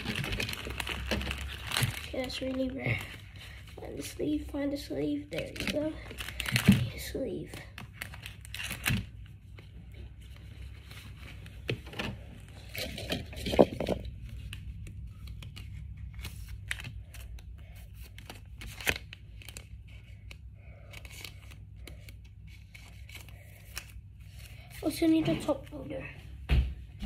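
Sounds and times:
louder plastic crackles: 0.0 - 3.3, 5.3 - 9.2.

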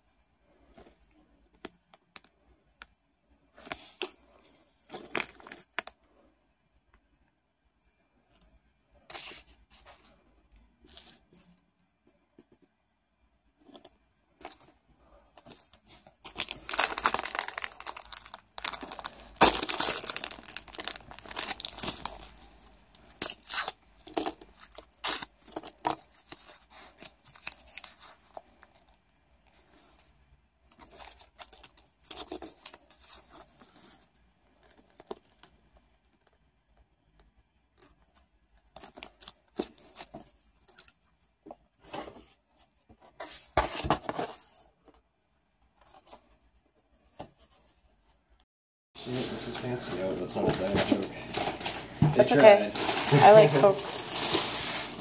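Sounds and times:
fortune cookies crinkling and cracking: 1.5 - 6.1, 9.1 - 11.7, 15.4 - 41.6, 49.3 - 55.0.

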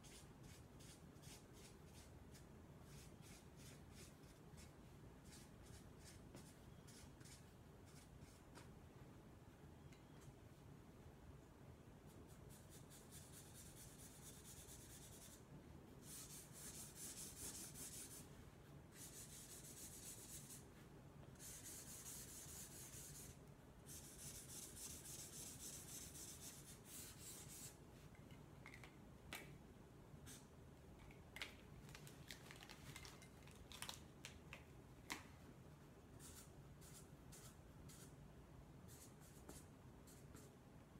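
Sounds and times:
marker rubbing on paper: 0.0 - 8.4, 12.3 - 15.4, 16.0 - 18.3, 18.9 - 20.6, 21.4 - 27.8, 36.2 - 38.1.

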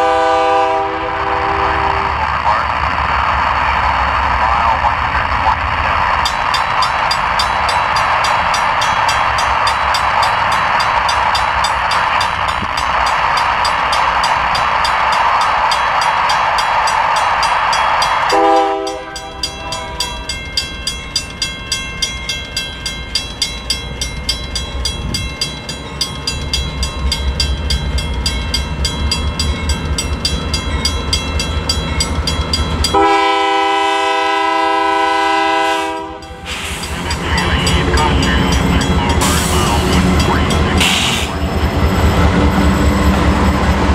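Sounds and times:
locomotive horn: 0.0 - 2.2, 18.3 - 20.3, 32.9 - 36.4
diesel locomotive rumble: 0.0 - 43.9
train passing: 0.0 - 43.9
crossing bell ringing: 6.1 - 43.9.

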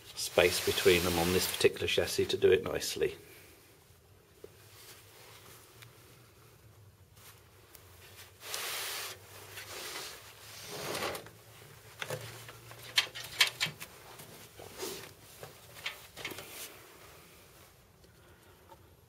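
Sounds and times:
sharp clicks and knocks: 12.0 - 13.9.

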